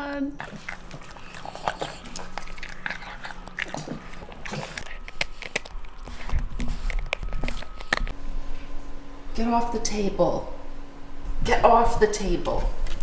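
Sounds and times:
dog eating and chewing: 0.0s - 8.2s.

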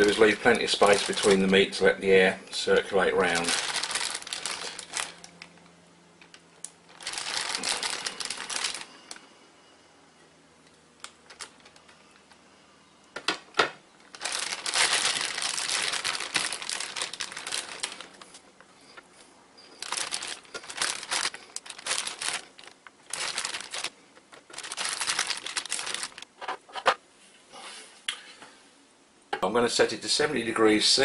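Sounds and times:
plastic bag crinkling: 0.0s - 1.8s, 3.0s - 9.3s, 11.0s - 12.0s, 14.1s - 19.0s, 19.6s - 26.4s.

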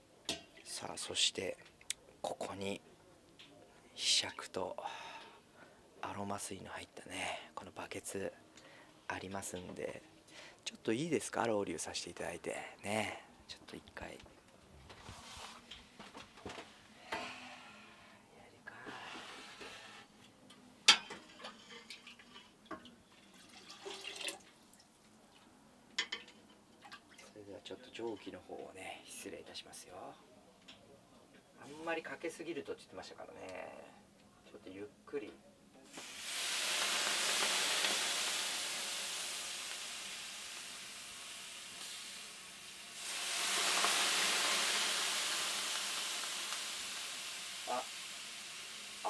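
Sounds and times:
water dripping: 22.0s - 25.5s
splashing hiss: 35.9s - 49.0s.

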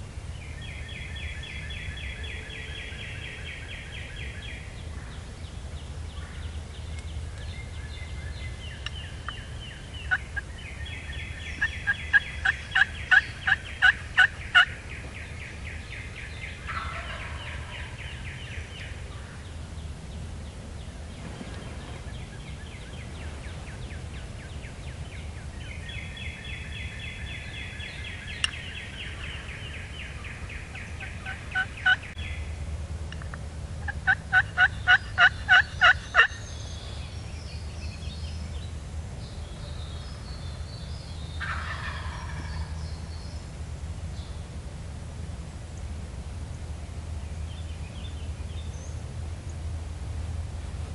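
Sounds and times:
wild turkeys gobbling: 10.0s - 10.5s, 11.5s - 14.8s, 16.6s - 18.1s, 28.4s - 32.1s, 33.8s - 36.4s, 41.4s - 42.9s.

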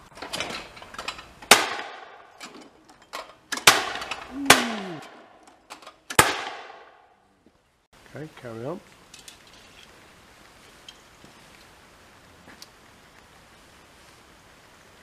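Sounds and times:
shotgun shots: 1.5s - 2.2s, 3.6s - 5.3s, 6.1s - 7.0s.

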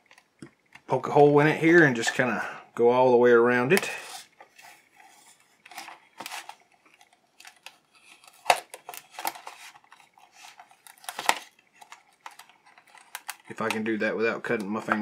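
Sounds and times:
craft knife scraping plastic: 3.8s - 13.8s.

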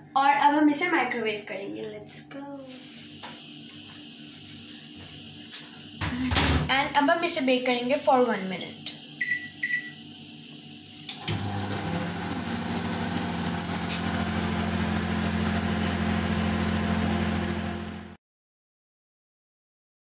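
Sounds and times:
microwave oven humming: 2.9s - 18.2s
microwave keypad beeps: 9.2s - 10.0s.

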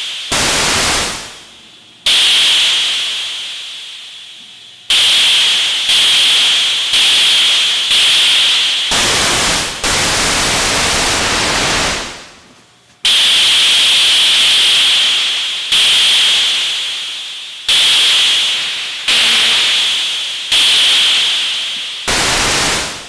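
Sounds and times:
synthesizer hiss bursts: 0.0s - 1.5s, 2.1s - 12.4s, 13.1s - 23.0s
deep synthesizer noise: 0.0s - 3.0s, 4.9s - 12.4s, 22.1s - 23.0s.

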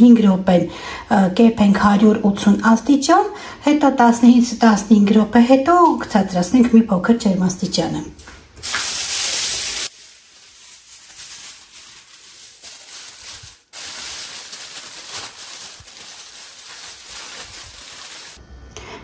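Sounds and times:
aluminium foil crinkling: 8.6s - 18.4s.

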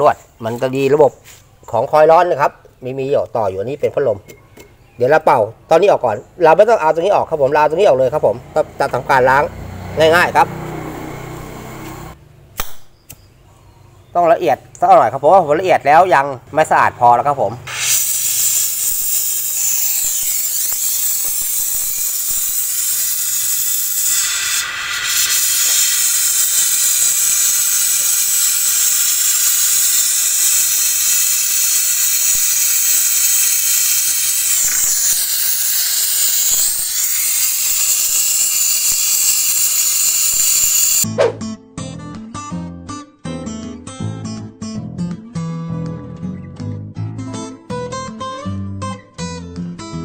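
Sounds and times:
compressed gas hissing through tubing: 17.7s - 41.1s.

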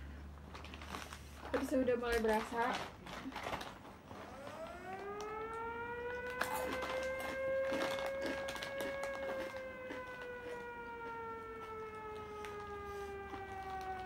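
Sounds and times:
foil snack bags crinkling: 0.4s - 14.0s
siren wailing: 4.1s - 14.0s
crunchy snack chewing: 6.4s - 10.6s.

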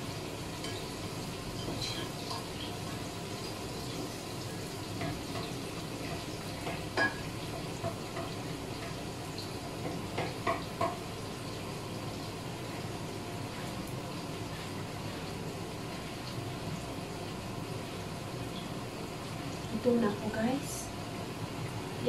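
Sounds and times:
frying hiss: 0.0s - 22.0s
kitchen exhaust fan: 0.0s - 22.0s
spatula knocking against pot: 9.8s - 11.0s.

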